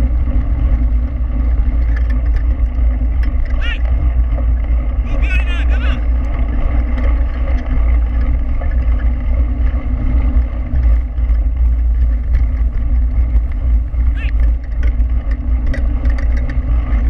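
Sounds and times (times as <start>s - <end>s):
low rumble: 0.0s - 17.0s
wind rushing over microphone: 0.0s - 17.0s.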